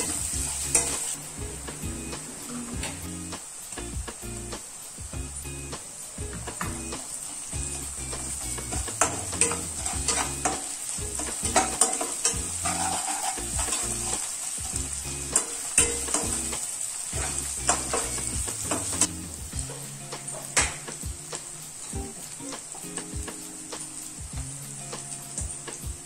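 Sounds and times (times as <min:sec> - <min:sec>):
spatula scraping and tapping pan: 0:00.0 - 0:01.2, 0:08.2 - 0:21.5
food sizzling in hot oil: 0:00.0 - 0:26.0.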